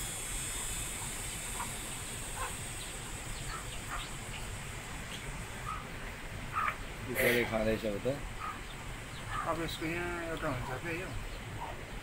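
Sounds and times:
steady high hiss: 0.0s - 12.0s
chicks peeping: 2.4s - 4.5s.

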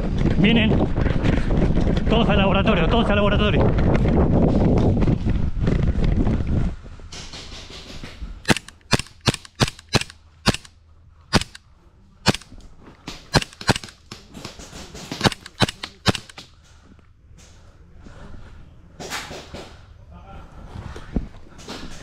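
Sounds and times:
airsoft gun cracks: 8.4s - 10.7s, 11.3s - 11.6s, 12.2s - 12.6s, 13.3s - 14.0s, 15.2s - 16.5s.

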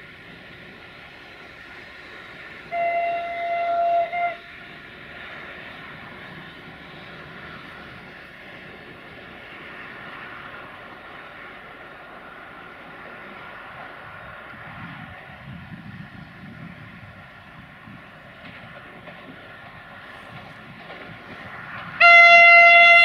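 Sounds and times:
railcar running noise: 0.0s - 23.0s
train horn: 2.6s - 4.6s, 22.0s - 23.0s.

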